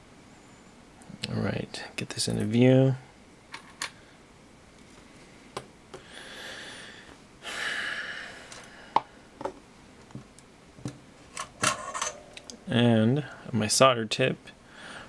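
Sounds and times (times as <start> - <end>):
soft breaths: 3.9 - 9.4, 14.6 - 15.0.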